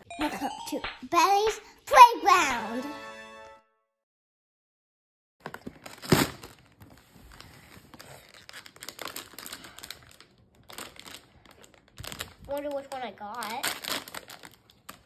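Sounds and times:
foil bag crinkling: 5.4s - 15.0s.

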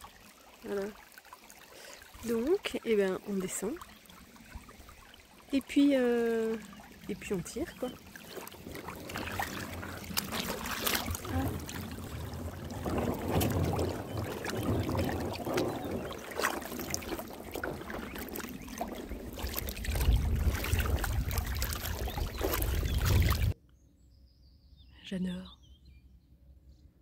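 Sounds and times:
river water splashing: 0.0s - 23.6s
kayak scraping on gravel: 8.2s - 23.6s
low rumble: 8.7s - 23.6s.

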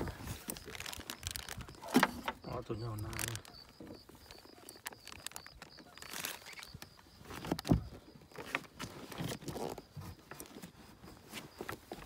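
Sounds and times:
plastic bag rustling: 0.0s - 12.0s.

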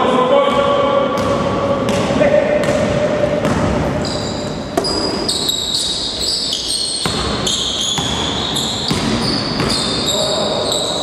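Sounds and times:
sneakers squeaking: 0.4s - 11.0s
basketball bouncing on hardwood: 7.0s - 9.9s.

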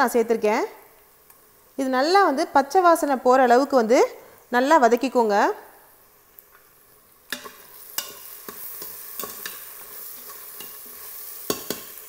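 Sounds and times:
onions sizzling in oil: 0.0s - 12.0s
spoon scraping metal pot: 7.3s - 12.0s.

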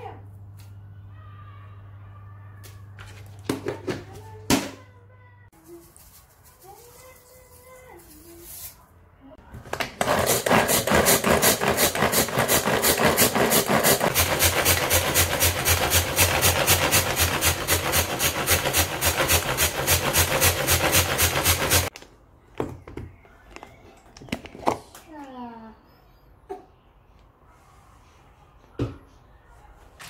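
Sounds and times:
pull-string food chopper chopping: 9.9s - 21.9s.

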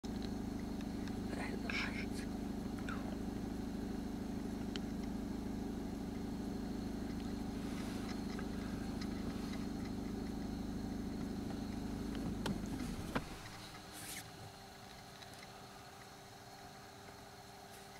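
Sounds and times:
car engine idling: 0.0s - 17.9s
faint ticks: 0.1s - 1.3s, 4.6s - 5.2s, 7.0s - 17.9s.

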